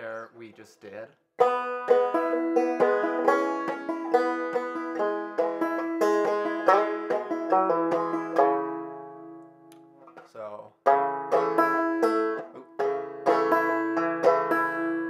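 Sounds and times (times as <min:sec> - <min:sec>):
banjo plucked notes: 0:01.4 - 0:15.0.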